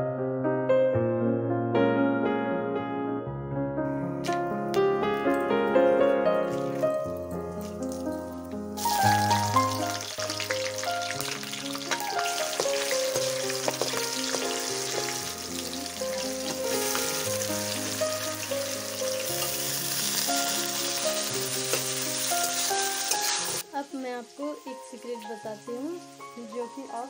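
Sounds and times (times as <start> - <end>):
onions sizzling in hot oil: 6.5 - 27.0.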